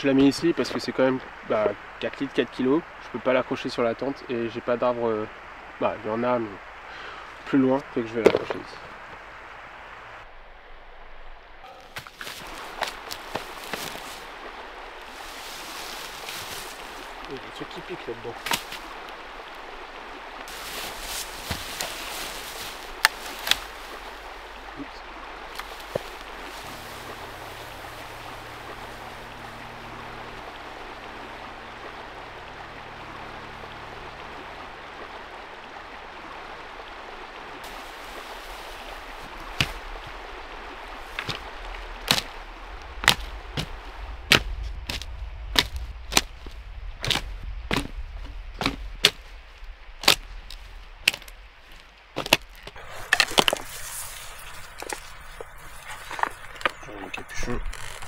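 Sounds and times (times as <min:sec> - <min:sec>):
flowing water: 0:00.0 - 0:58.0
dry branches snapping: 0:11.6 - 0:14.3, 0:15.0 - 0:17.4, 0:18.4 - 0:19.2, 0:20.5 - 0:24.4, 0:25.4 - 0:29.4, 0:37.7 - 0:56.8.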